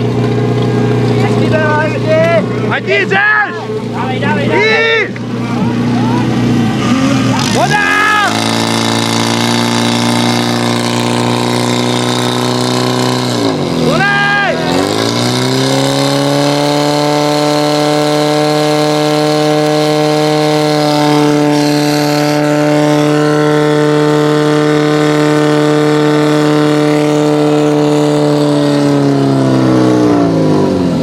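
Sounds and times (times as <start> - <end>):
fire pump engine running: 0.0 - 31.0.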